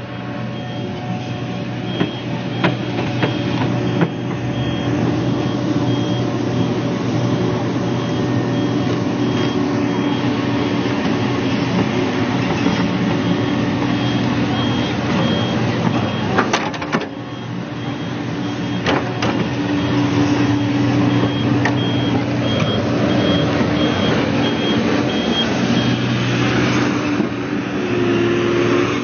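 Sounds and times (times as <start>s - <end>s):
warning beeper: 0.0s - 11.5s
diesel engine running: 0.0s - 29.0s.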